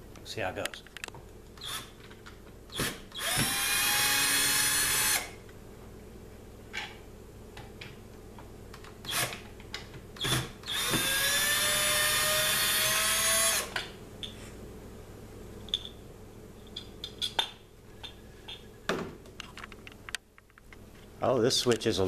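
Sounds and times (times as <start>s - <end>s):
drill motor whine: 2.7s - 5.3s, 10.2s - 13.8s.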